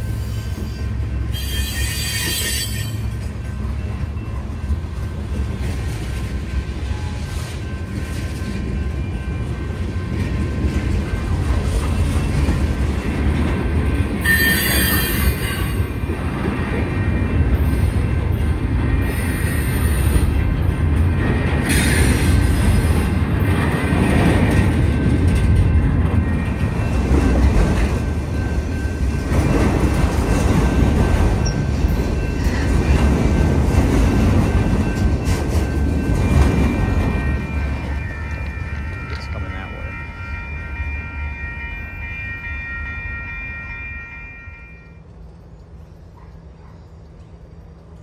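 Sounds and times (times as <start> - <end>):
train wheels rumbling on rail: 0.0 - 48.0
high-pitched wheel squeals: 0.1 - 3.2, 14.2 - 15.9.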